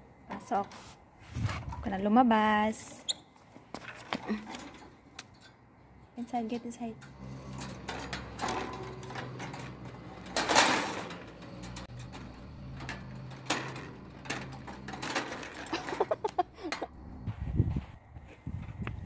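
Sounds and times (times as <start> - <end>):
wire cage rattling and clicking: 6.4 - 16.9.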